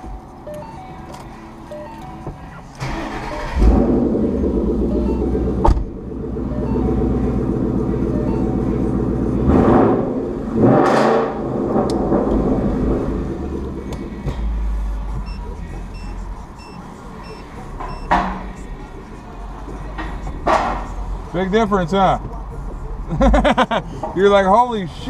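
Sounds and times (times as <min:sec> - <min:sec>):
car engine idling: 0:00.0 - 0:25.0
engine revving: 0:02.8 - 0:15.2.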